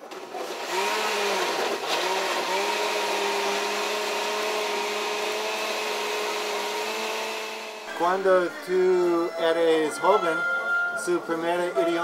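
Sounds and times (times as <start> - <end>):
blender motor whine: 0.6 - 7.9.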